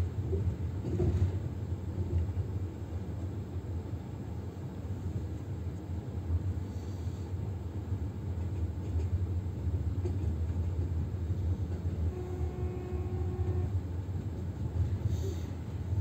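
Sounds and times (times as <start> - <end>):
train rumbling on track: 0.0 - 16.0.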